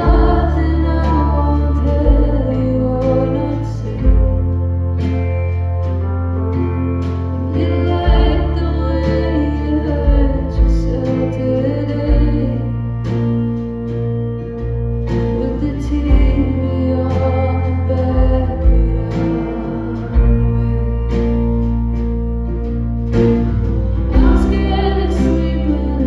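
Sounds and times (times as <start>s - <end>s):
woman singing: 0.0s - 4.6s, 7.4s - 13.0s, 15.2s - 21.6s, 23.9s - 26.0s
drums: 0.0s - 26.0s
electric bass: 0.0s - 26.0s
strummed acoustic guitar: 0.0s - 26.0s.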